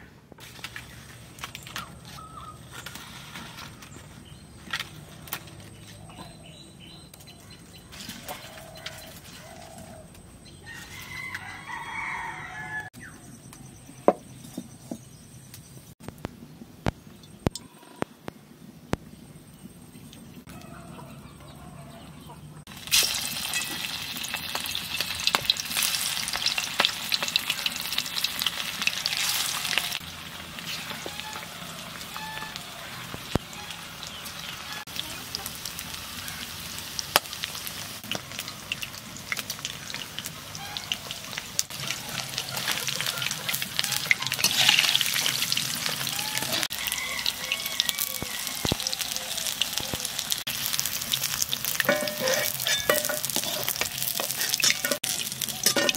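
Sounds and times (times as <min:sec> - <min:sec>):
food deep-frying in hot oil: 0:22.7 - 0:55.9.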